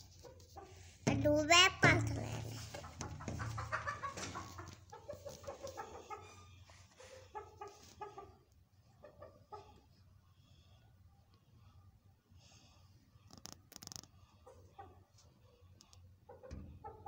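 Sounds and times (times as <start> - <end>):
chickens clucking: 0.0 - 1.2, 1.9 - 10.2, 14.4 - 17.0.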